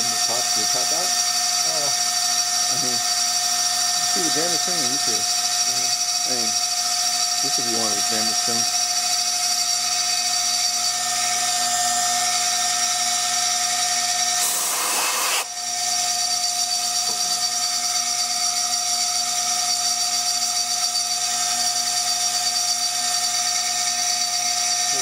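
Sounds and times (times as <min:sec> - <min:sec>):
milling machine spindle whining: 0:00.0 - 0:25.0
loud hiss: 0:14.4 - 0:15.5.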